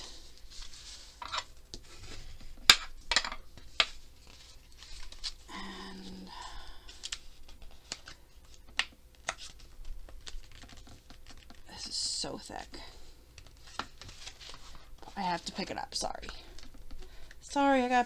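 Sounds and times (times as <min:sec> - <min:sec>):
paper sliding and scraping: 0:00.5 - 0:02.4.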